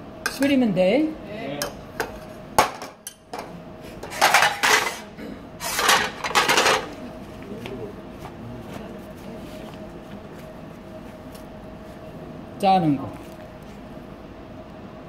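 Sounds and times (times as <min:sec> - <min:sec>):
faint steady hum: 0:00.0 - 0:15.0
metal utensils scraping: 0:04.0 - 0:06.9.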